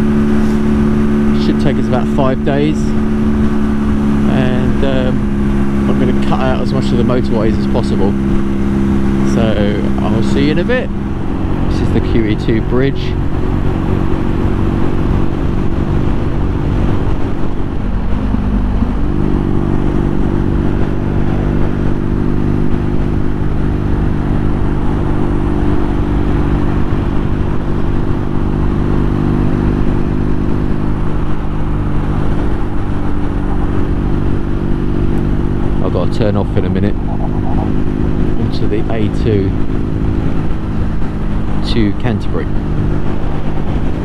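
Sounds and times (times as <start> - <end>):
motorcycle engine cruising: 0.0 - 44.0
wind and road noise: 0.0 - 44.0.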